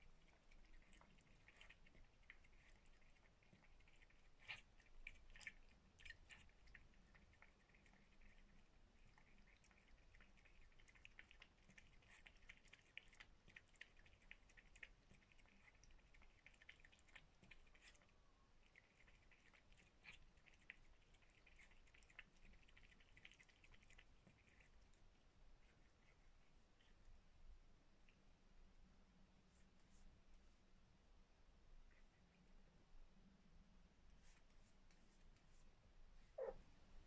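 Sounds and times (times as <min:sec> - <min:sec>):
cat chewing wetly: 0:00.0 - 0:29.3.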